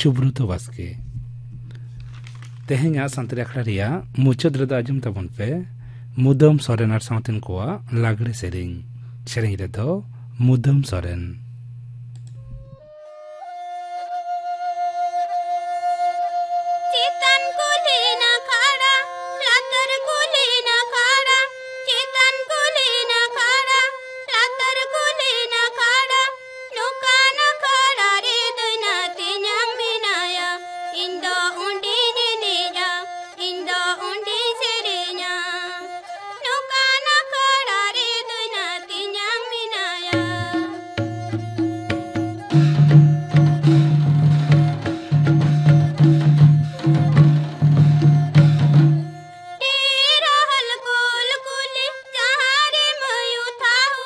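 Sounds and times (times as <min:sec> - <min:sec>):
person singing: 0:16.9 - 0:54.0
held instrumental note: 0:40.1 - 0:49.6
drums: 0:40.2 - 0:49.2.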